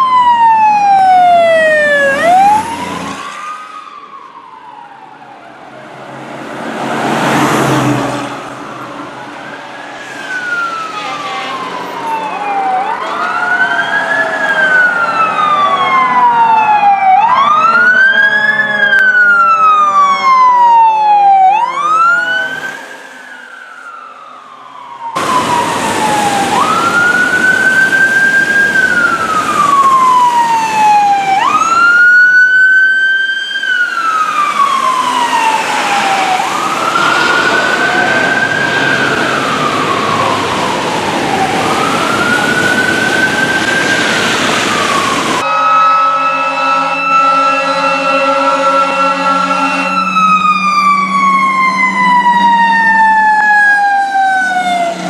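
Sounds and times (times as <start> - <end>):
fire engine sirens wailing: 0.0 - 55.0
horn blast: 45.4 - 50.3.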